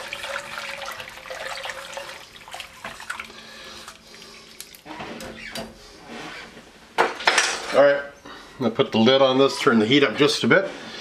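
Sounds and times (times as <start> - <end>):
liquid swishing and sloshing: 0.0 - 5.1.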